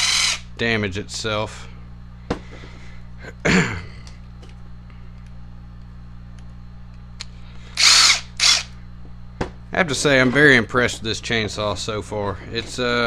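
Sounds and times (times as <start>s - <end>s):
cordless driver motor whirring: 0.0s - 0.4s, 7.7s - 8.8s
steady low hum: 0.0s - 13.0s.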